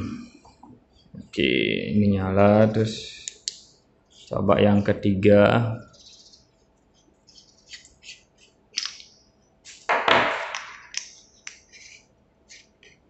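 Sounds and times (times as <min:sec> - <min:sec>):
rustling knock: 0:09.9 - 0:10.9.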